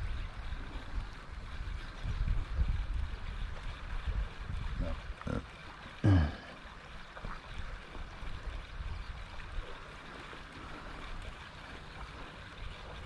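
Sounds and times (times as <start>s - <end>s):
gently lapping seawater: 0.0s - 13.0s
wind rumbling on microphone: 0.0s - 13.0s.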